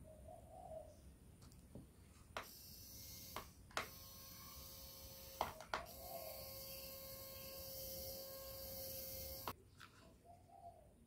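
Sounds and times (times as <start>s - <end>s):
small motor whining: 2.4s - 9.6s.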